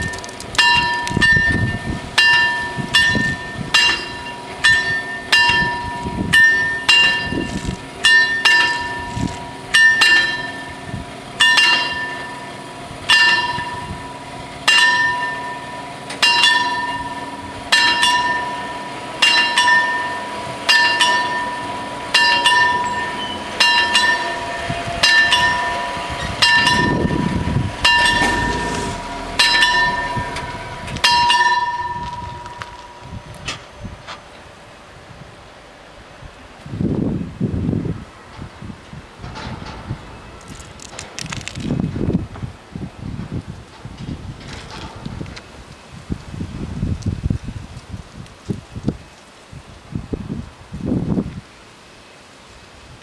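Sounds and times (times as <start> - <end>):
level crossing warning bells: 0.6 - 33.2.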